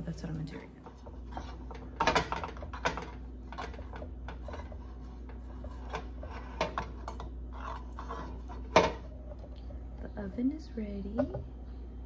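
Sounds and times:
steady low hum: 0.0 - 12.0
butter rubbing in cupcake pan: 3.2 - 8.7.

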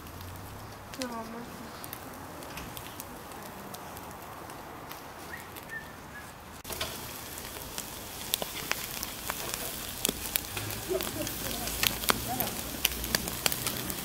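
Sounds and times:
meat sizzling on grill: 0.0 - 5.8, 6.6 - 14.0
fat popping on coals: 0.0 - 14.0.

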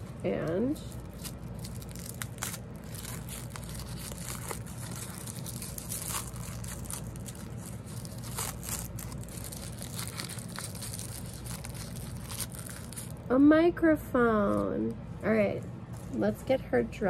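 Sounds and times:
wrapper crinkling and rustling: 0.0 - 13.3.

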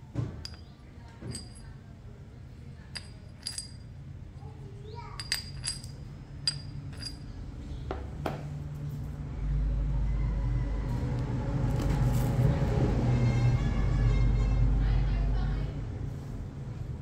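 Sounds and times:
metallic clinks with ringing: 0.4 - 1.9, 2.8 - 4.0, 5.2 - 7.4.

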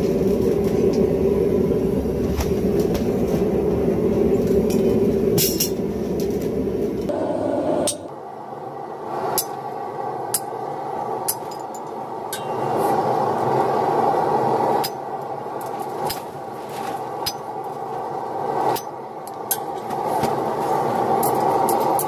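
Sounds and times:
steady rushing noise: 0.0 - 22.0
hammer striking steel on anvil: 11.3 - 12.7, 14.8 - 15.1.

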